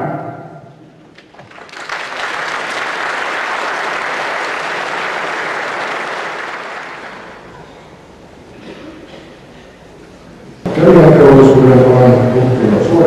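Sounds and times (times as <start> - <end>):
audience applauding: 1.1 - 7.5.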